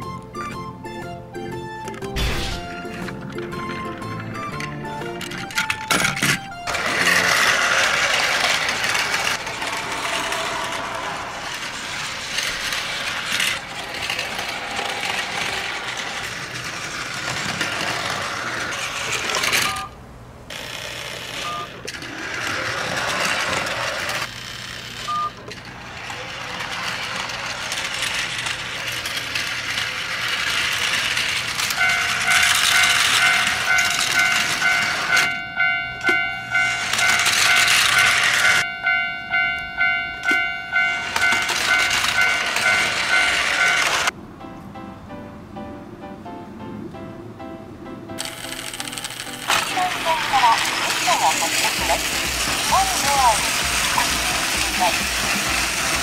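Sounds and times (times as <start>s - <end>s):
toy train whirr and clatter: 2.8s - 44.2s, 48.2s - 56.0s
toy crossing warning chime: 19.3s - 20.0s, 21.4s - 21.8s, 25.0s - 25.4s, 29.4s - 44.1s.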